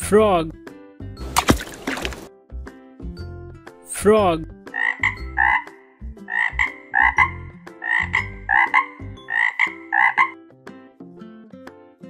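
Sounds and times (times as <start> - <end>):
frog croaking: 4.7 - 10.4.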